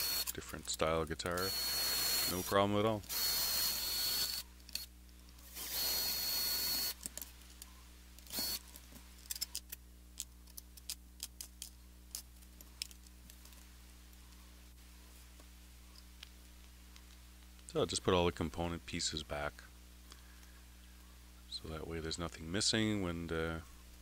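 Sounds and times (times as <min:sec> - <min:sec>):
electric screwdriver whining: 0:00.0 - 0:00.4, 0:01.4 - 0:04.9, 0:05.5 - 0:07.0, 0:08.3 - 0:08.6
small metal parts clicking: 0:09.2 - 0:13.6.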